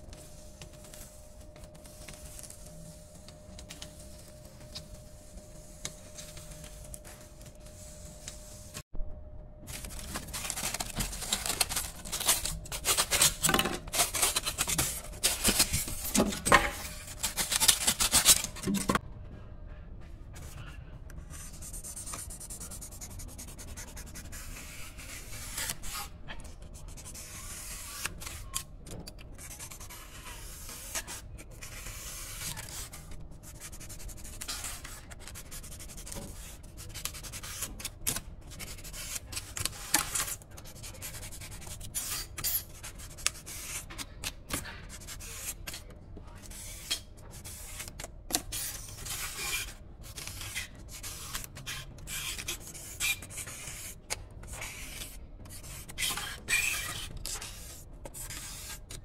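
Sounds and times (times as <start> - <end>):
styrofoam scraping and rubbing: 9.7 - 19.0.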